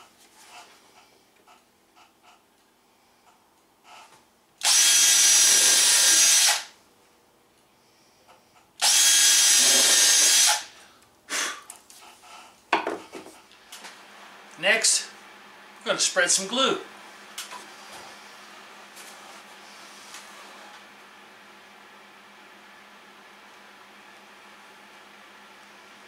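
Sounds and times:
cordless drill drilling wood: 4.6 - 6.7, 8.8 - 10.7.

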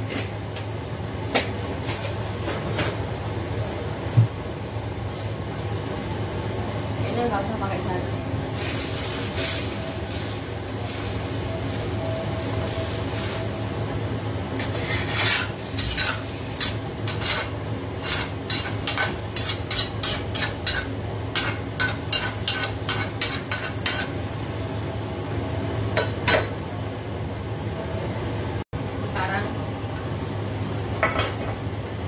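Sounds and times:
food sizzling: 5.0 - 26.6
metal ladle scraping a wok: 14.6 - 24.2.

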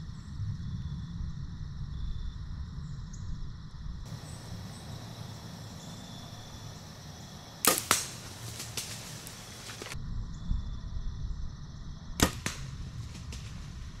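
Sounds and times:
arrow striking animal: 7.6 - 10.0, 12.2 - 13.7
bowstring release crack: 7.6 - 10.0.

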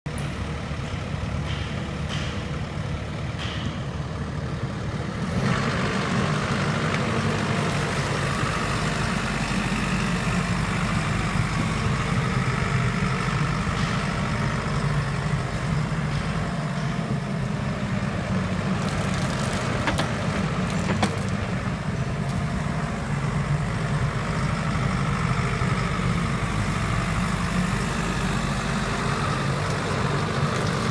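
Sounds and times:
excavator diesel engine running: 0.1 - 30.9.

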